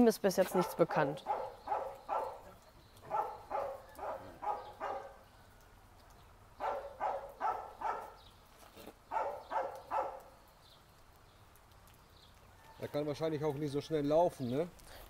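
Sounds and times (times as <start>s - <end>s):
dog barking: 0.5s - 5.2s, 6.6s - 8.2s, 9.1s - 10.3s.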